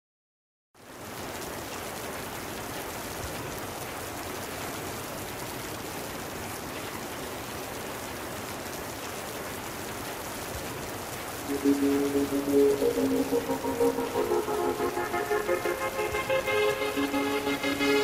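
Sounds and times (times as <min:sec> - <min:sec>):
steady even hiss: 0:11.4 - 0:18.0.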